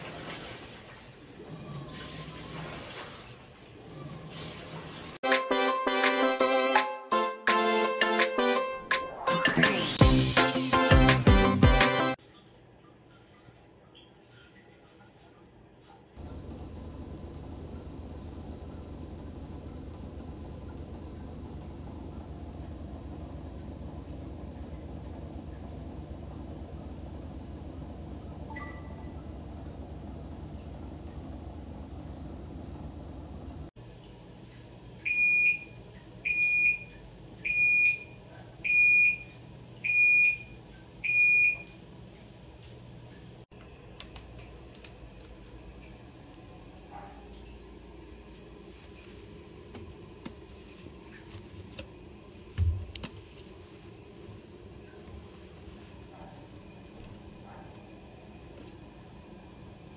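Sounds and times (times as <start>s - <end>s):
washing machine drum spinning: 16.2s - 33.8s.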